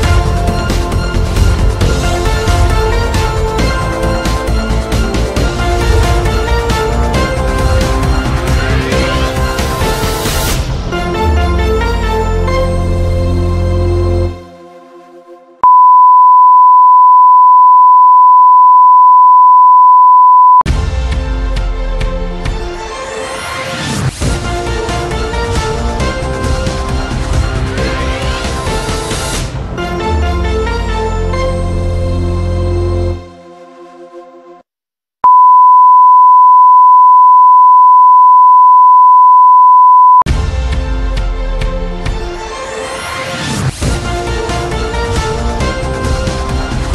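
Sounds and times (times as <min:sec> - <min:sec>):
broadcast test tone: 0:15.6 - 0:20.6, 0:35.3 - 0:40.3.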